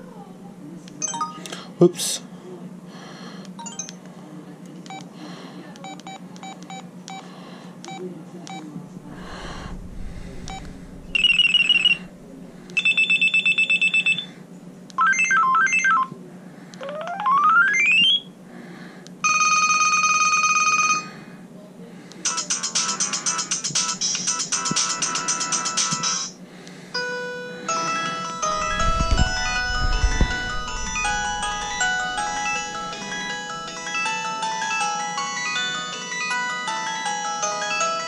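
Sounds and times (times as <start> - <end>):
electronic ringtone melodies: 27.4 - 38.0.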